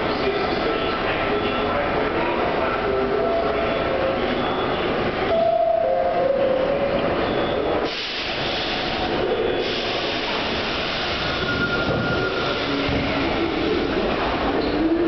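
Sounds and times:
subway train machine noise: 0.0 - 15.0
train hiss: 7.8 - 14.0.

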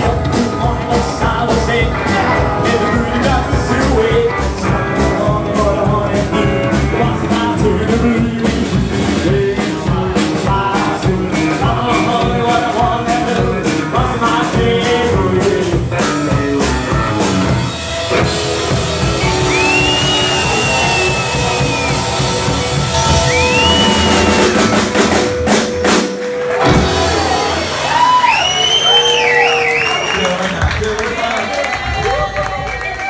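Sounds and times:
person singing: 0.0 - 17.1
slapped upright bass: 0.0 - 28.1
rock and roll band playing live: 0.0 - 33.0
high whistle-like tone: 19.0 - 26.3, 28.0 - 30.3.

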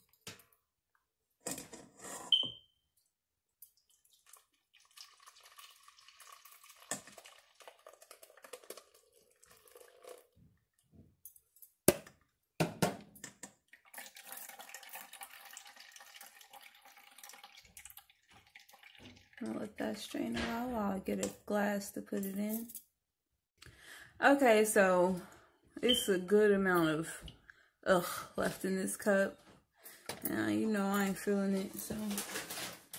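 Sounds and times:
juice trickling into bowl: 3.6 - 10.8, 13.6 - 19.5.

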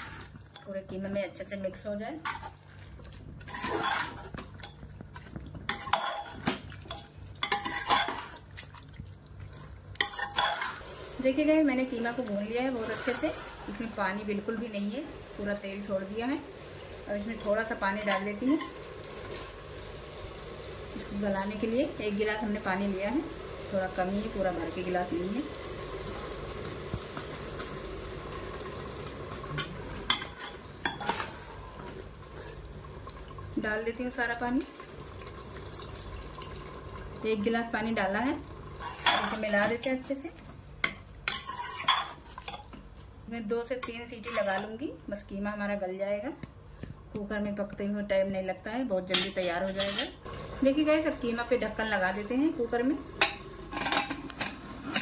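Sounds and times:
water sizzling in hot oil: 0.0 - 0.5, 2.5 - 42.7, 49.8 - 55.0
spoon scraping inside a pot: 0.0 - 0.7, 2.2 - 4.9, 5.6 - 8.4, 10.0 - 10.8, 12.7 - 13.8, 29.6 - 31.7, 38.8 - 39.5, 40.9 - 42.7, 43.8 - 44.7, 49.2 - 50.2.

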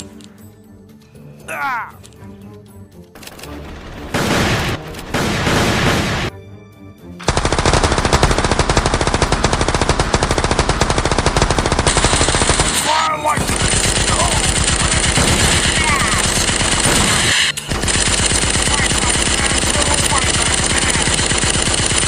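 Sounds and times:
machine-gun automatic fire: 7.2 - 22.0.

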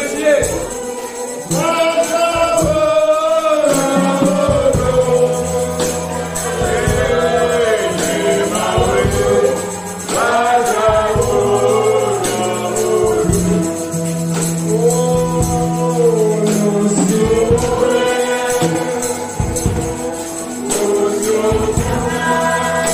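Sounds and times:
group of voices singing: 0.0 - 22.9
tambourine shaken and struck: 0.0 - 22.9
held low instrumental notes: 3.7 - 22.9.

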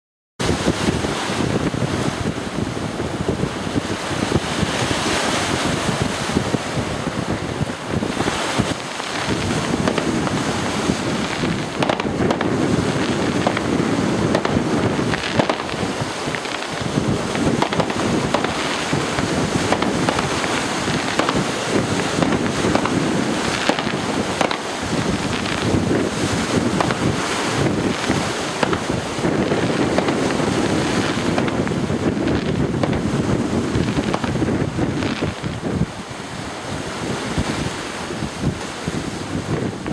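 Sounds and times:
wind buffeting microphone: 0.4 - 39.9
faint firework bangs: 8.2 - 35.6.

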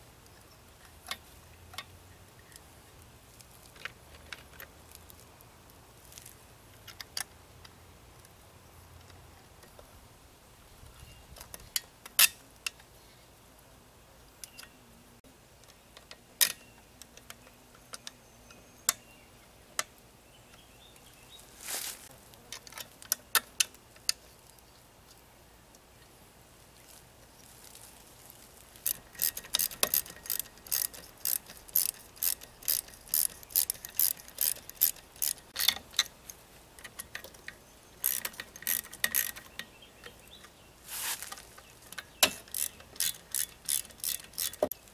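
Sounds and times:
socket ratchet clicking: 28.8 - 39.6, 42.0 - 44.8
metal parts clicking and tapping: 28.8 - 40.2, 41.3 - 44.8.

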